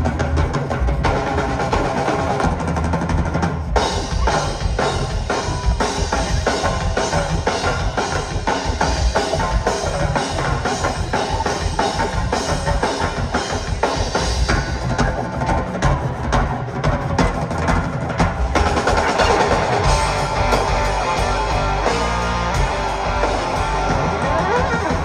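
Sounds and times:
drum kit fast beat: 0:00.0 - 0:25.0
live rock band: 0:00.0 - 0:25.0.

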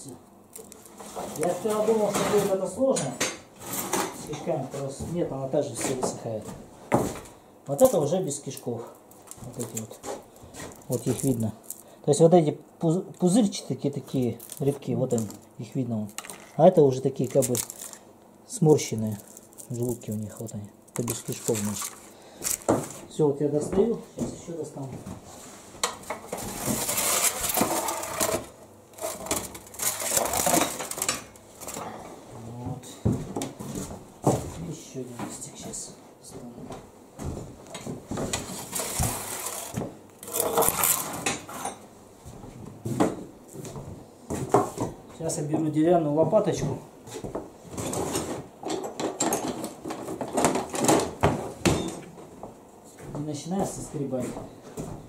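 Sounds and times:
metal tray scraping on brick: 0:26.4 - 0:29.2, 0:38.5 - 0:41.3
utensils clattering in a drawer: 0:26.6 - 0:31.8, 0:38.5 - 0:41.8, 0:47.8 - 0:52.0.

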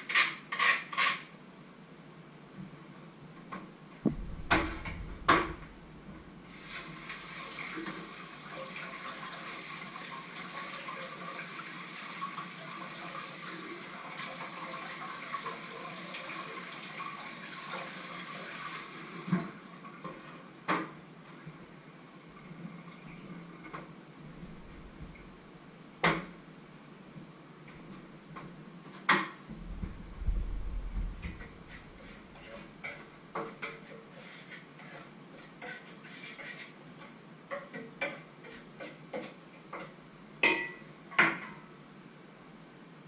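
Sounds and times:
thud: 0:04.0 - 0:06.3, 0:29.5 - 0:32.0
kitchenware knocking and clanking: 0:04.1 - 0:05.8.

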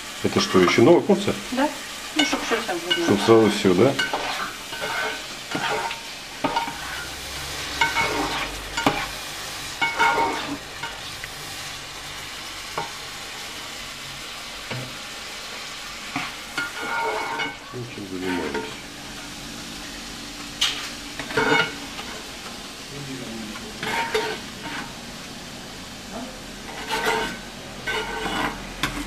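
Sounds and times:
food sizzling in a frying pan: 0:00.0 - 0:29.0
spatula clacking and scraping pan: 0:02.2 - 0:09.2, 0:09.8 - 0:11.4, 0:12.7 - 0:13.1, 0:16.1 - 0:17.6, 0:18.2 - 0:18.8, 0:20.6 - 0:22.2, 0:23.8 - 0:24.9, 0:26.6 - 0:29.0.

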